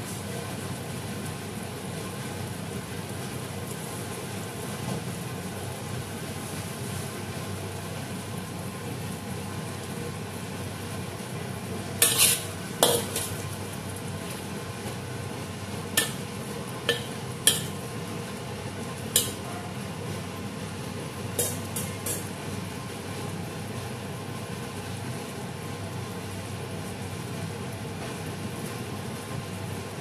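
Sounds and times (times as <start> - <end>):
sauce bubbling in a wok: 0.0 - 30.0
utensil clacking and scraping wok: 11.3 - 22.7.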